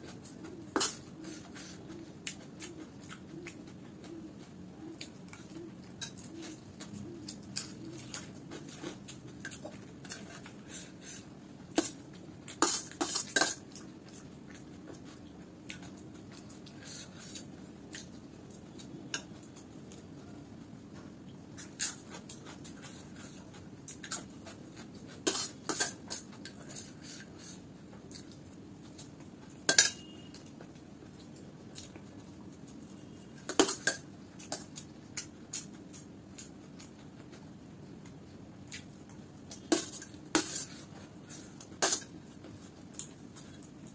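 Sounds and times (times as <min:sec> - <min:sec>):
soft chewing: 0:00.0 - 0:43.9
metal spoon clinking on steel plate: 0:29.7 - 0:30.3.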